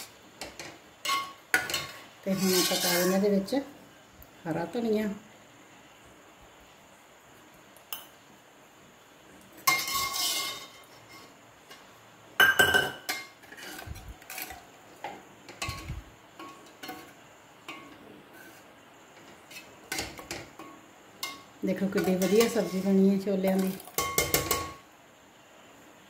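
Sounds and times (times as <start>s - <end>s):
ladle scraping metal pot: 0.0s - 3.4s, 9.6s - 11.9s, 13.1s - 14.7s, 15.5s - 24.6s.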